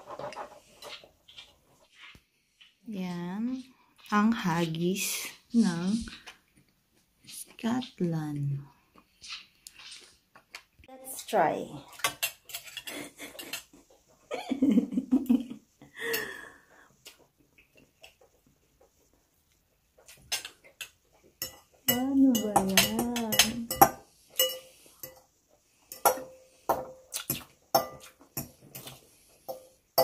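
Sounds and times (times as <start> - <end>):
cutlery clinking on plates: 12.0 - 13.7, 20.1 - 25.3, 25.9 - 30.0.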